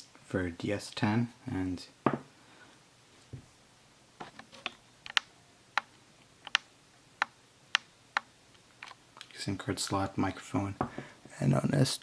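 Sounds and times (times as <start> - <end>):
smartphones clicking and tapping: 4.2 - 9.3.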